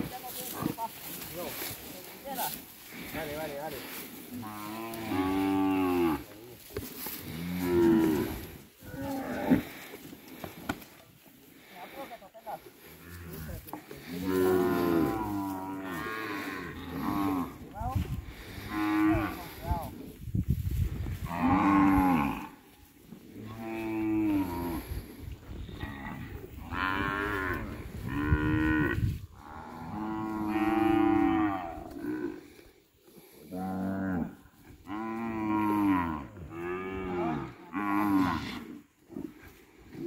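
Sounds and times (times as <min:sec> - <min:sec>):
heifer mooing: 0:04.4 - 0:06.2, 0:07.3 - 0:09.8, 0:13.0 - 0:17.5, 0:25.7 - 0:32.6.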